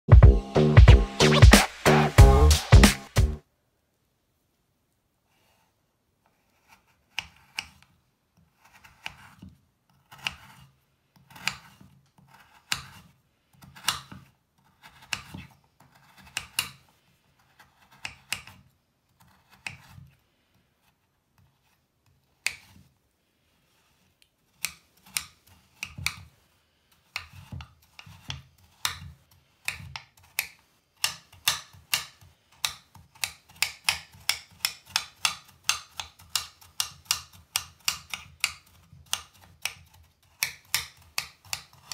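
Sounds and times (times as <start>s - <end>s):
quick chopping: 0.2s - 3.4s
knife slicing bath bar: 6.2s - 20.2s, 20.8s - 23.0s, 23.6s - 41.9s.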